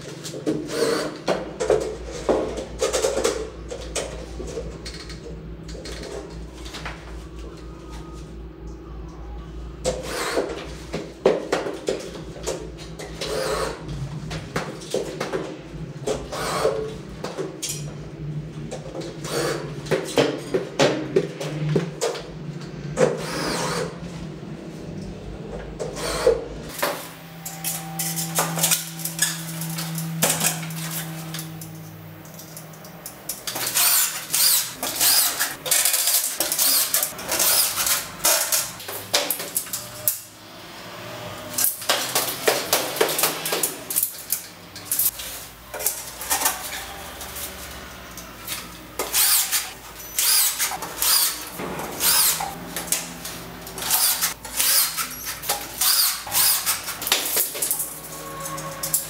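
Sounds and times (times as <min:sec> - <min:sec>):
cordless drill driving screws: 0:23.2 - 0:23.9, 0:33.5 - 0:38.1, 0:49.0 - 0:52.5, 0:53.8 - 0:56.8.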